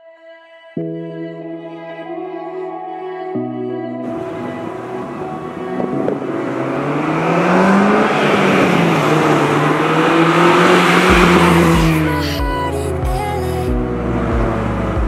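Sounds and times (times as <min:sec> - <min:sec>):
car engine driving past: 0:04.1 - 0:12.4.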